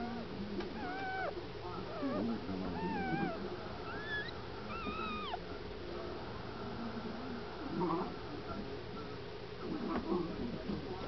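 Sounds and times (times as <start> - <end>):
puppies crying: 0.8 - 5.4.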